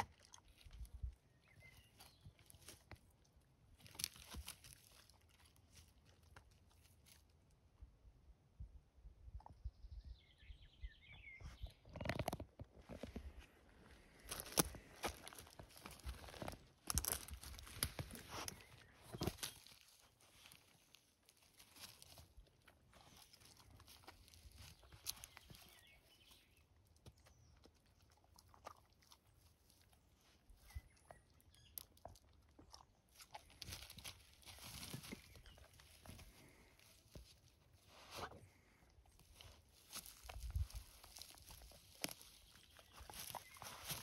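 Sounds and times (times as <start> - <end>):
rustling of shrubs: 0.5 - 7.3, 11.6 - 26.6, 33.1 - 44.0
small clicks and crunches: 3.8 - 7.2, 11.8 - 13.5, 14.1 - 25.8, 39.1 - 44.0
dog chewing berries: 27.6 - 29.9, 30.6 - 37.3, 38.6 - 44.0.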